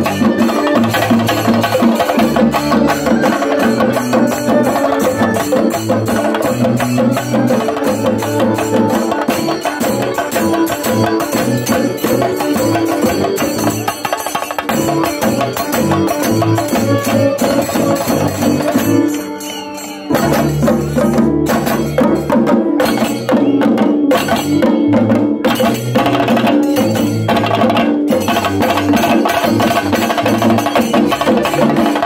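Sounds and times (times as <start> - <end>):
electric violin melody: 0.0 - 13.6, 14.9 - 20.4
drums beaten in fast rhythm: 0.0 - 32.0.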